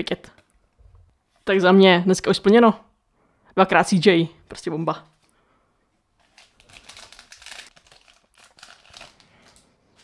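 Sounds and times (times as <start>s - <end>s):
card foil pack rustling: 6.2s - 10.0s.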